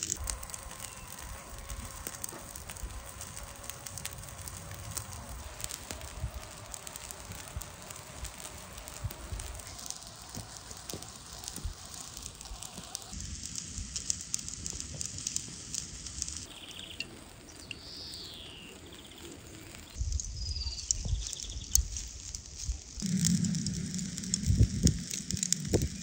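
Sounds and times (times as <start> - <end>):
sharp pops: 0.0 - 19.1, 19.8 - 26.0
embers crackling and sizzling: 0.0 - 26.0
birds calling: 16.5 - 21.8.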